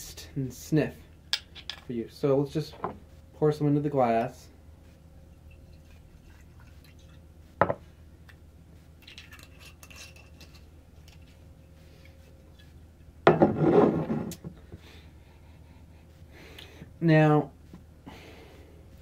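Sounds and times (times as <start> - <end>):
bottle knocking on wooden table: 13.3 - 13.6.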